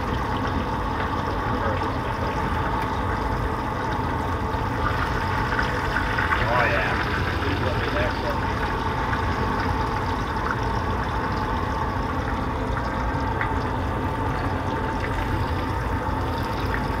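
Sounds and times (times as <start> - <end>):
fish sizzling in oil: 0.0 - 17.0.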